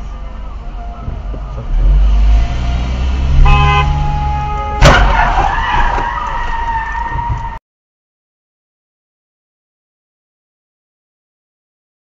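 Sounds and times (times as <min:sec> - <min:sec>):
road and engine rumble: 0:00.0 - 0:07.6
car horn blast: 0:03.3 - 0:05.4
car crash impact: 0:04.8 - 0:07.6.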